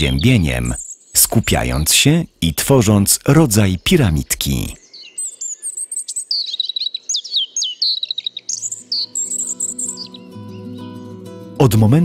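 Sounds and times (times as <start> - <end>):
small birds chirping: 0.0 - 11.3
soft music with low notes: 8.7 - 12.0.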